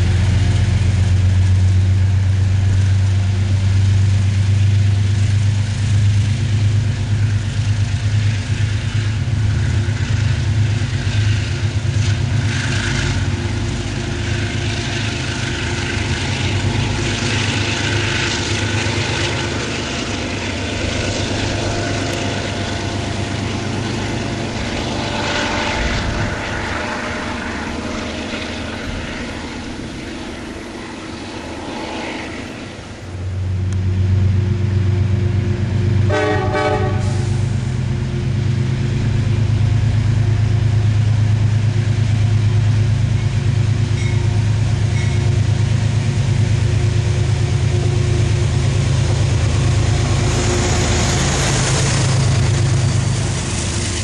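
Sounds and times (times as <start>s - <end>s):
diesel locomotive engine: 0.0s - 54.0s
train horn blast: 36.0s - 37.6s.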